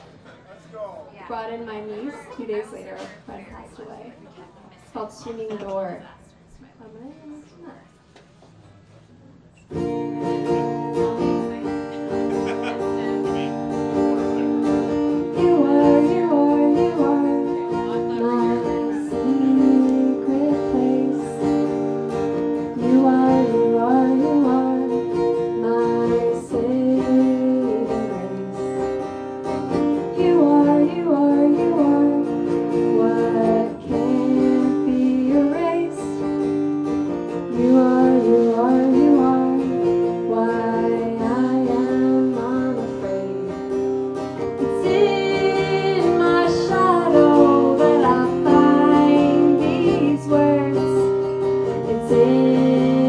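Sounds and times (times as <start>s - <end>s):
acoustic guitar strumming: 9.7s - 53.0s
woman singing: 15.2s - 21.8s, 22.6s - 29.0s, 30.0s - 36.3s, 37.4s - 43.8s, 44.6s - 53.0s.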